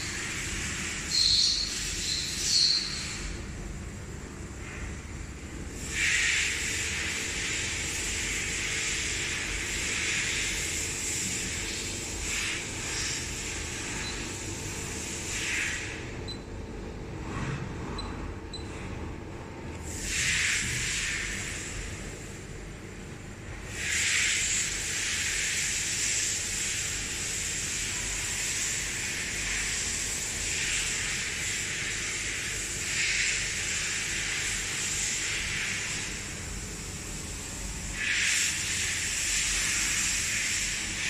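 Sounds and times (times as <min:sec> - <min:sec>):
steady hiss: 0:05.8 - 0:16.0, 0:23.7 - 0:41.0
thin high whine: 0:05.8 - 0:16.5.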